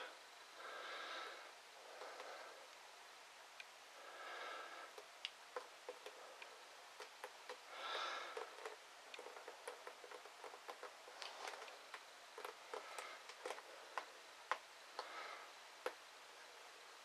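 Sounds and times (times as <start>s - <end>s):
quiet ticks and clicks: 1.9s - 2.9s, 3.5s - 3.8s, 4.9s - 16.1s.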